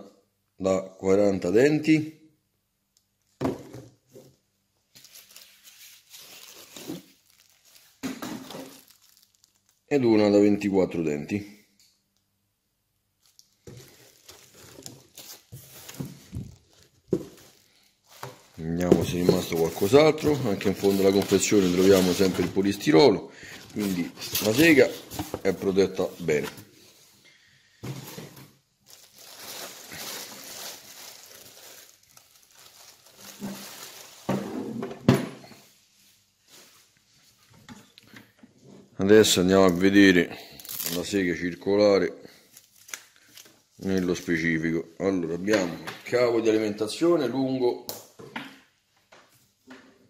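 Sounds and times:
plastic wrap crinkling: 4.8s - 10.3s, 13.2s - 26.6s, 28.8s - 34.4s, 39.3s - 41.5s, 42.3s - 44.6s
handling noises: 13.2s - 26.8s.

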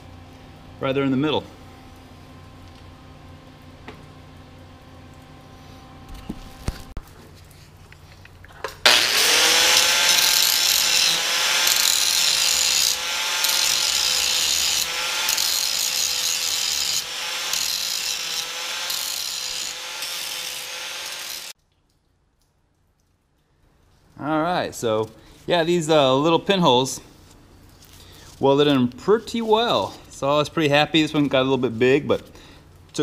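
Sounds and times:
angle grinder grinding metal: 8.8s - 21.6s.

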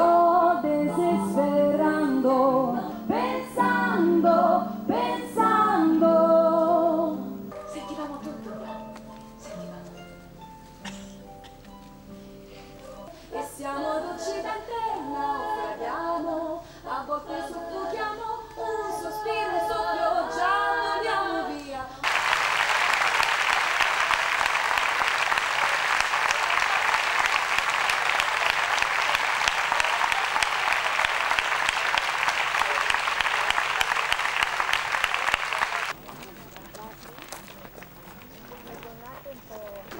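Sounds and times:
voices singing a cappella: 0.0s - 9.7s, 13.0s - 22.1s
audience applause: 22.0s - 38.6s.

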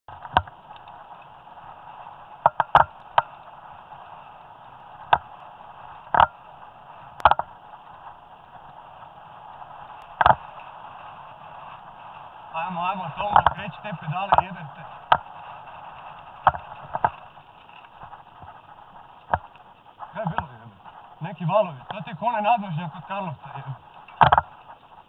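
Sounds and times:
bike knocking on roots and rocks: 0.1s - 1.0s, 2.4s - 4.2s, 6.1s - 6.5s, 7.2s - 8.0s, 10.1s - 10.6s, 15.1s - 15.3s, 16.2s - 18.6s, 19.2s - 20.5s, 23.9s - 24.8s
bike tyre and wind rush: 0.1s - 25.0s.

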